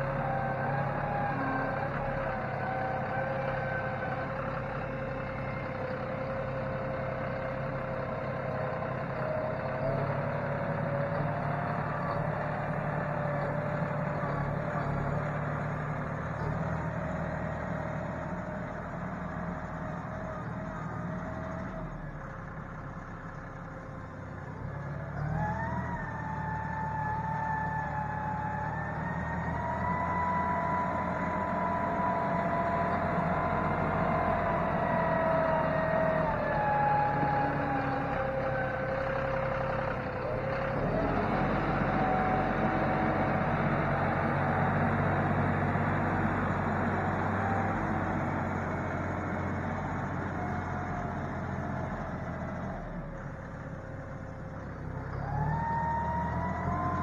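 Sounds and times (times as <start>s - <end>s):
tractor diesel engine revving: 0.0s - 57.0s.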